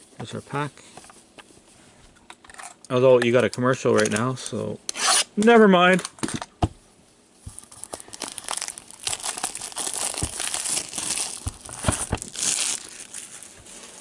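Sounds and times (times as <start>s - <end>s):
plastic shrink wrap crinkling: 7.4s - 14.0s.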